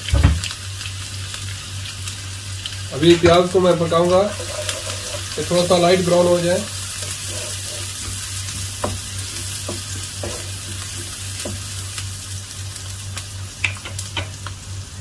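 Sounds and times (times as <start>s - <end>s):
onions sizzling in a wok: 0.0s - 15.0s
wooden spatula scraping a pan: 4.3s - 11.7s.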